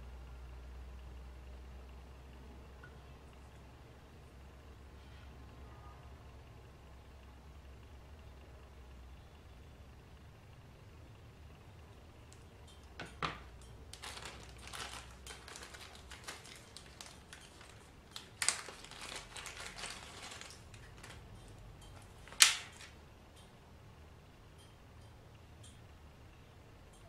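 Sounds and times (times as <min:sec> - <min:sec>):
small parts clicking and rustling: 0:12.3 - 0:23.5.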